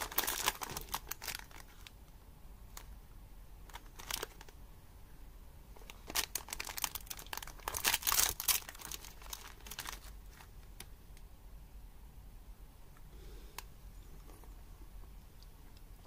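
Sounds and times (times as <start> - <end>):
plastic wrapper crinkling and tearing: 0.0 - 1.9, 3.6 - 4.6, 5.8 - 10.9.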